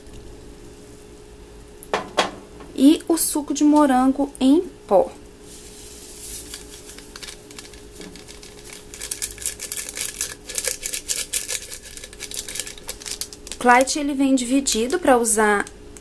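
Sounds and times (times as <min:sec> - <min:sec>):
faint hum: 0:00.0 - 0:16.0
powder pouring crackles: 0:05.4 - 0:15.7
sachet crinkling and shaking: 0:05.5 - 0:15.2.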